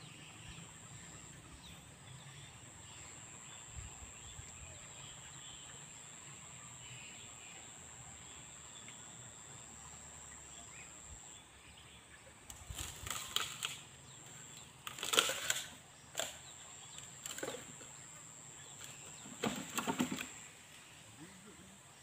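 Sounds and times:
rustling and crackling: 12.5 - 18.0.

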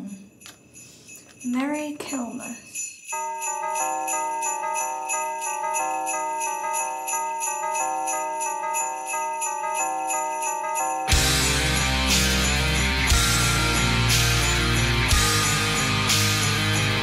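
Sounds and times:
sleigh bells shaken: 0.0 - 17.0.

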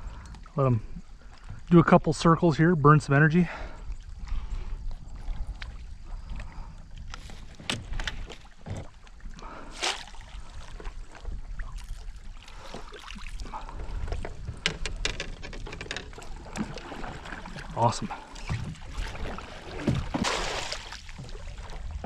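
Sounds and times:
knocks against canoe hull: 7.5 - 8.9, 19.7 - 20.5
fish splashing at surface: 18.4 - 21.2.

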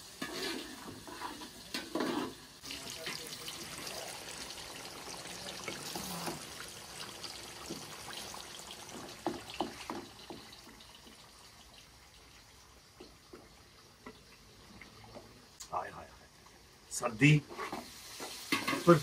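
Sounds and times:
curry bubbling and sizzling in a wok: 0.0 - 15.6, 16.3 - 19.0
wooden spoon knocking on pan: 8.9 - 10.5.

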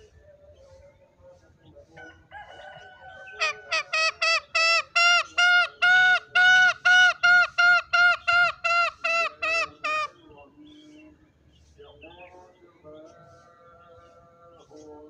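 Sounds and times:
junglefowl calling: 1.9 - 11.1.

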